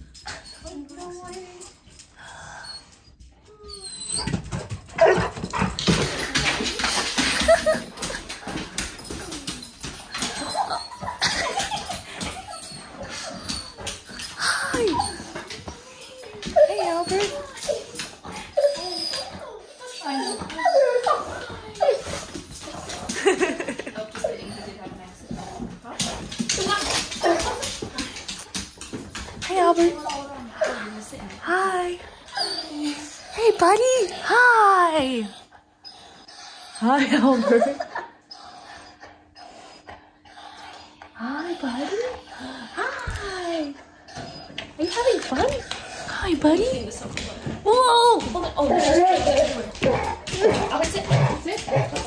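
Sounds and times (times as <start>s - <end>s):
dog whimpering: 0.1s - 25.0s, 29.8s - 52.0s
dog whimpering and yipping: 2.5s - 6.0s, 9.0s - 22.3s, 32.2s - 33.4s.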